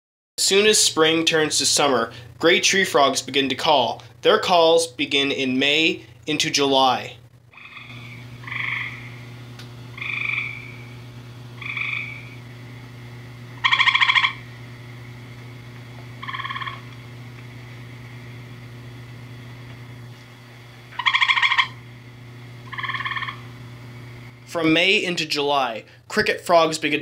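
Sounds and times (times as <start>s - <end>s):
tree frogs trilling: 7.5s - 9.3s, 9.9s - 11.0s, 11.6s - 12.4s, 13.6s - 14.6s, 16.2s - 17.0s, 20.9s - 21.8s, 22.6s - 23.6s.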